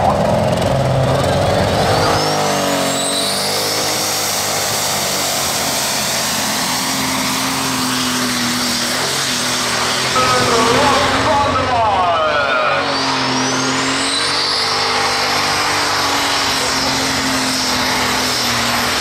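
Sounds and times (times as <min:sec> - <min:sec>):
tractor engine at full throttle: 0:00.0 - 0:19.0
high whine: 0:04.5 - 0:19.0.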